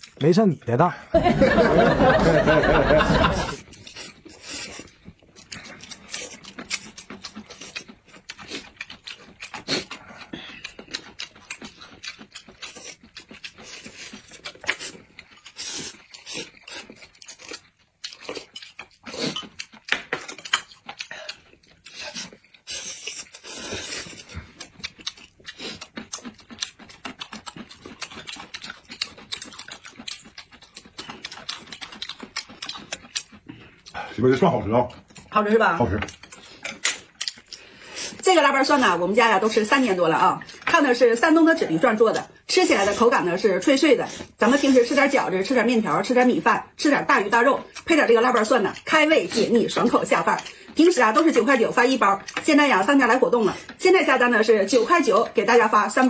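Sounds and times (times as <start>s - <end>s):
people slurping noodles: 1.3s - 17.6s, 18.2s - 19.8s, 20.4s - 45.3s.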